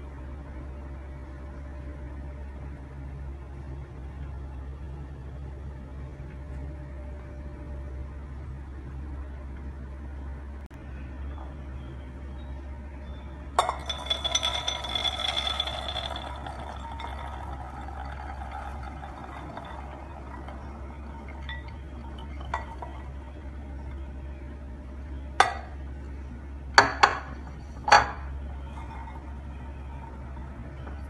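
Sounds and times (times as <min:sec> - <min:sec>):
sharp clinks against glass bowl: 0:13.6 - 0:18.1
seeds pattering into glass bowl: 0:13.6 - 0:23.4.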